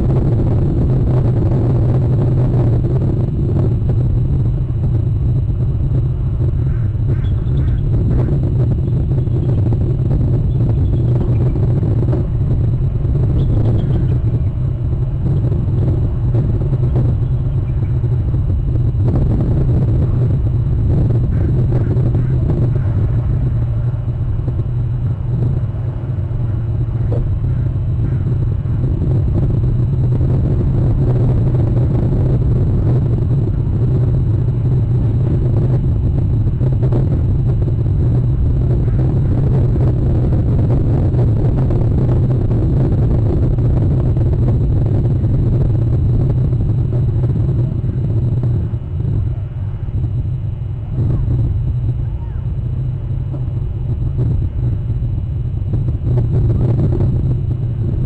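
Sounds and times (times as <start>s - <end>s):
steady low rumble: 0.0s - 58.0s.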